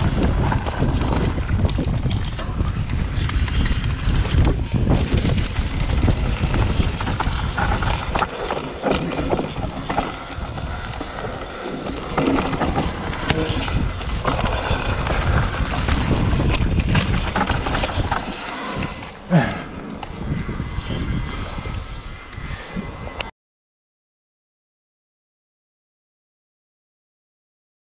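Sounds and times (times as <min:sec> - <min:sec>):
bike rattling and knocking: 0:00.0 - 0:19.3
tyres rolling over dirt: 0:00.0 - 0:21.2
wind buffeting microphone: 0:00.0 - 0:23.3.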